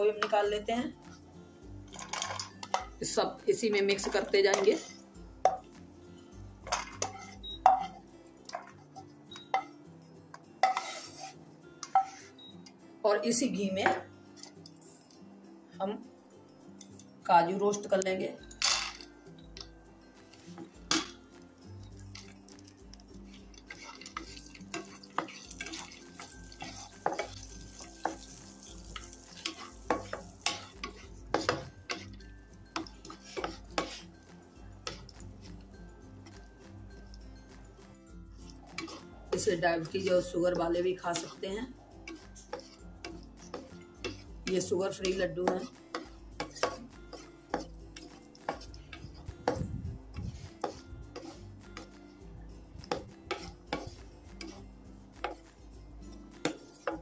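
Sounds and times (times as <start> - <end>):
light sizzle of ghee: 0.0 - 12.7, 18.0 - 57.0
soft background music: 0.0 - 57.0
metal spoon clinking on pan: 1.9 - 3.0, 6.6 - 9.8, 10.6 - 12.2, 17.7 - 19.7, 20.7 - 21.2, 23.3 - 34.1, 38.4 - 49.6, 52.8 - 55.5, 56.1 - 57.0.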